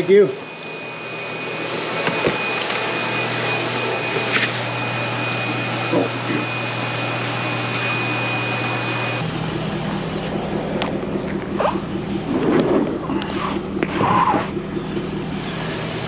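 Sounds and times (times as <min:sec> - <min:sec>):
high whine: 0:00.0 - 0:16.0
motor humming and hissing: 0:00.0 - 0:16.0.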